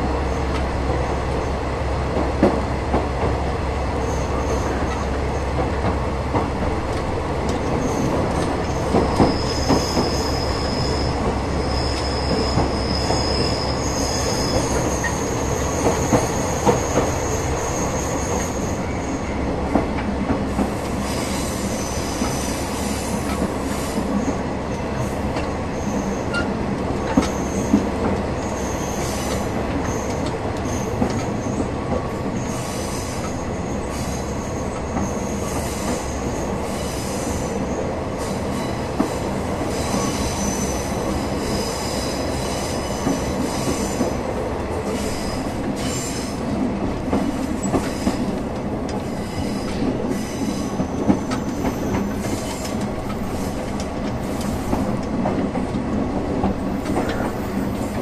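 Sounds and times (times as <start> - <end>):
high wheel squeal: 7.8 - 19.4, 39.7 - 44.0.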